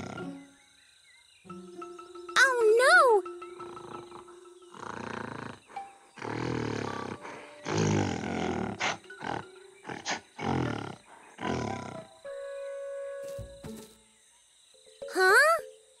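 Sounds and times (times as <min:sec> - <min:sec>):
tense background music: 0:00.0 - 0:13.4
gorilla roars and growls: 0:03.7 - 0:12.1.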